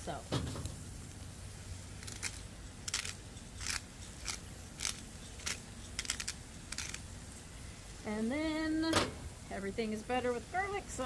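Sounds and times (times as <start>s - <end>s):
pepper grinder crunching: 1.9s - 7.2s.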